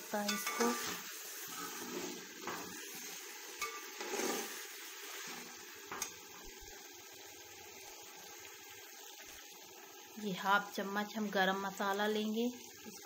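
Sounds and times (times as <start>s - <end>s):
chicken sizzling in a pan: 0.0s - 13.0s
spoon knocking and scraping pan: 0.2s - 6.2s.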